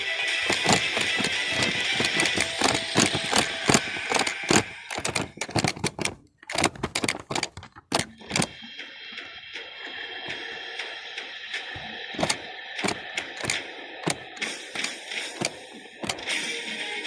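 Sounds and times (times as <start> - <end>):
sharp mechanical clicks: 0.4 - 8.6, 11.8 - 16.4.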